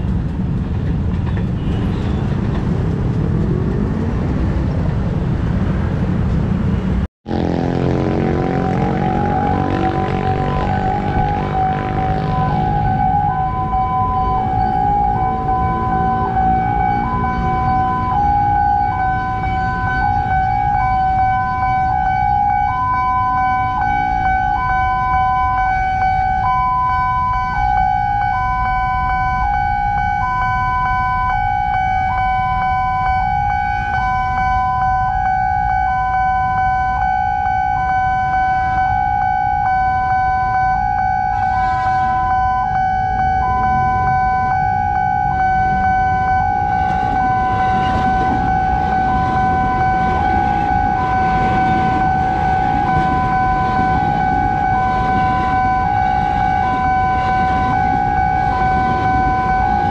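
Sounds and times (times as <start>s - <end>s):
electric train rumble and wheel clatter: 0.0s - 7.0s, 8.0s - 26.5s, 38.5s - 59.9s
level crossing warning alarm: 7.3s - 59.9s.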